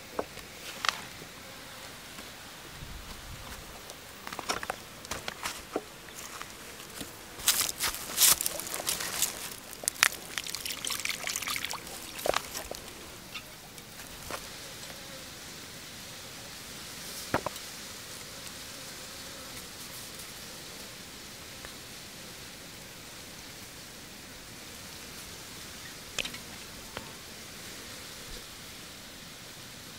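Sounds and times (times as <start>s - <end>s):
steady outdoor hiss: 0.0s - 29.9s
small water splashes: 8.2s - 13.1s.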